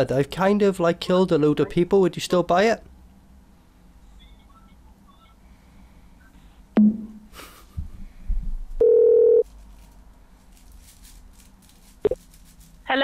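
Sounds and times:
electronic phone beep: 8.8 - 9.4.

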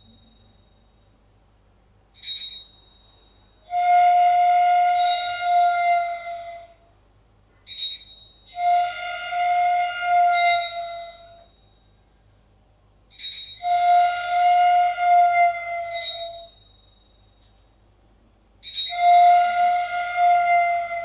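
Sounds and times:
small bell ring: 0.0 - 1.4, 2.1 - 3.8, 5.0 - 5.6, 7.6 - 8.6, 10.4 - 12.2, 13.1 - 13.8, 15.9 - 18.0, 18.6 - 19.0
flute-like wind instrument notes: 3.6 - 6.9, 8.5 - 11.4, 13.6 - 16.5, 18.8 - 21.0.

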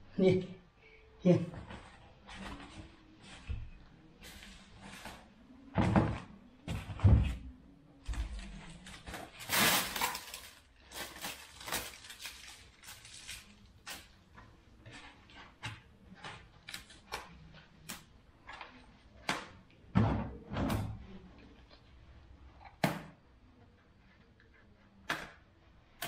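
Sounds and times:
plastic wrapping crinkling: 8.2 - 14.2.

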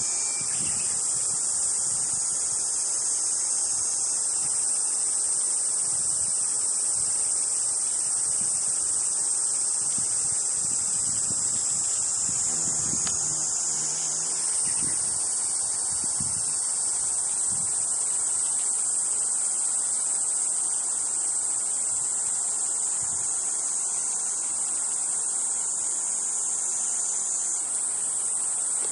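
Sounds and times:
insects singing: 0.0 - 28.9
faint low buzzes: 9.8 - 17.9.

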